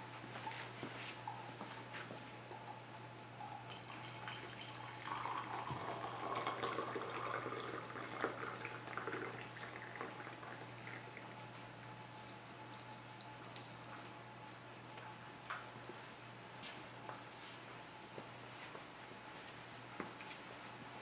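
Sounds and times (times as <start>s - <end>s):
water pouring into ceramic mug: 3.4s - 13.8s.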